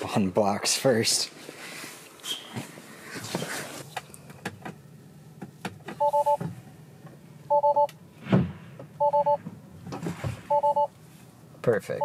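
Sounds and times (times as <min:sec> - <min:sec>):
two-note warning beeps: 0:06.0 - 0:06.4, 0:07.5 - 0:07.9, 0:09.0 - 0:09.4, 0:10.5 - 0:10.9.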